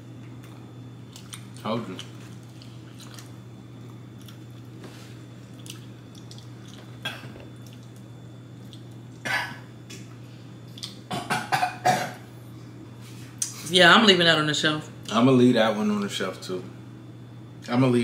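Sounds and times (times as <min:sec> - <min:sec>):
low room hum: 0:00.0 - 0:18.0
faint chewing: 0:00.2 - 0:09.2.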